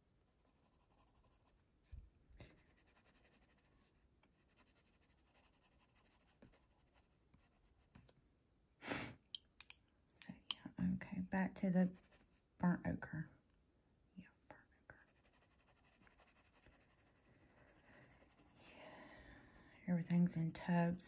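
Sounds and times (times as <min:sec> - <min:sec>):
pencil scratching on paper: 0:00.3 - 0:01.6, 0:02.6 - 0:08.1, 0:11.8 - 0:12.4, 0:15.0 - 0:19.5.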